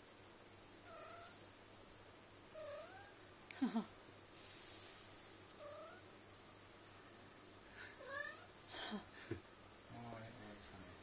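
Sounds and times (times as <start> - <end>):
cat and kittens mewing: 0.8 - 1.5, 2.5 - 3.2, 5.6 - 6.2, 7.9 - 8.7.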